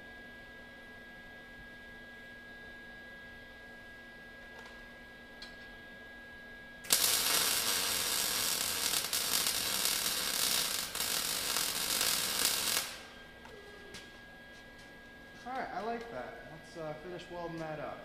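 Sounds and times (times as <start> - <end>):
welding arc crackling: 6.8 - 13.3.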